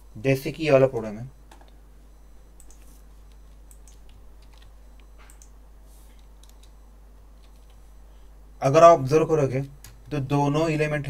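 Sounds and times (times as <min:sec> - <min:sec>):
computer keyboard keystrokes: 0:02.6 - 0:02.9, 0:03.7 - 0:05.6, 0:06.2 - 0:06.8, 0:07.4 - 0:07.8.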